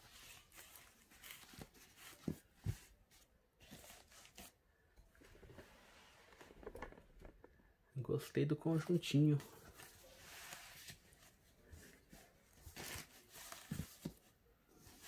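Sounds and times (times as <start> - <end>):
fabric rustling: 0.0 - 7.7, 9.4 - 15.0.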